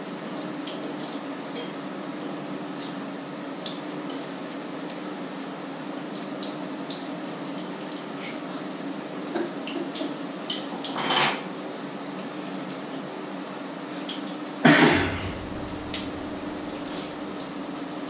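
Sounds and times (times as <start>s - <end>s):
food frying crackle: 0.0s - 18.0s
pans and utensils clattering: 9.3s - 11.5s
steady hum: 14.6s - 17.6s.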